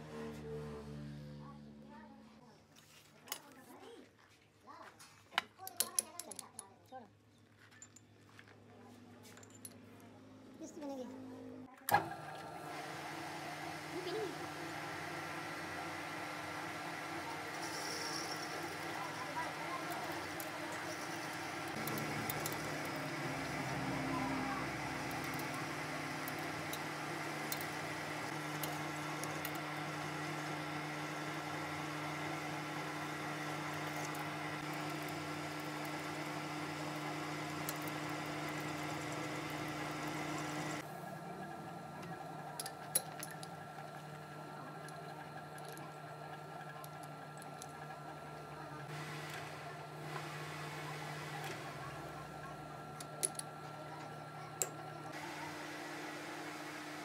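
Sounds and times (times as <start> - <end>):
metal lathe humming and whining: 12.0 - 57.0.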